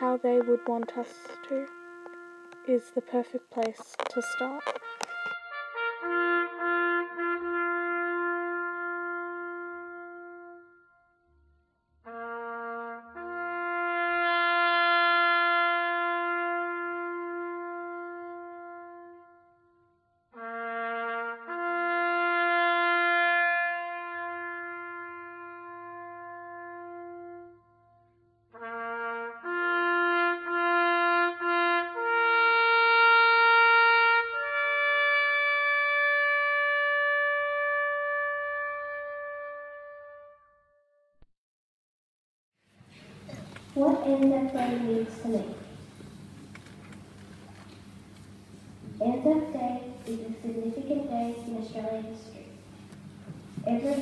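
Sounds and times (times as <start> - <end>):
bugle playing a slow call: 0.0 - 11.0, 12.1 - 19.7, 20.4 - 40.6.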